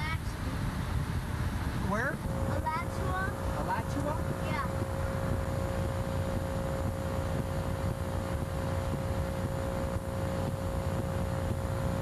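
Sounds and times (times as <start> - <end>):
air rushing around cockpit: 0.0 - 12.0
constant high hum: 0.0 - 12.0.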